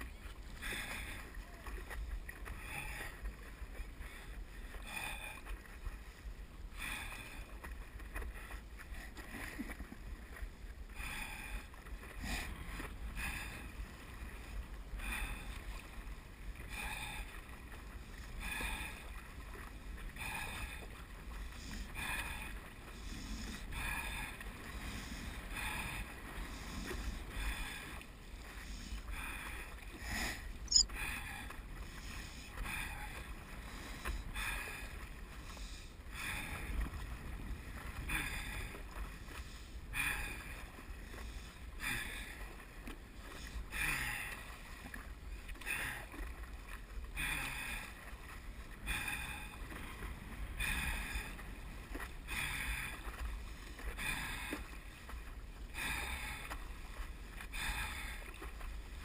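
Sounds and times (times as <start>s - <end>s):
low rumble of wind and water: 0.0s - 59.0s
paddle strokes splashing water: 0.0s - 59.0s.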